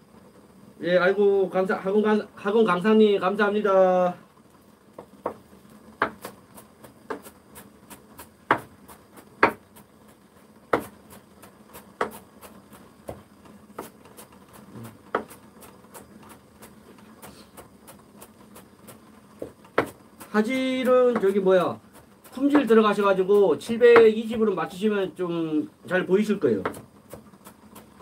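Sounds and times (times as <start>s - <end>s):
knife chopping on wooden board: 5.0s - 5.4s, 6.0s - 9.8s, 10.7s - 15.4s, 16.3s - 22.8s, 23.6s - 24.4s, 26.6s - 28.0s.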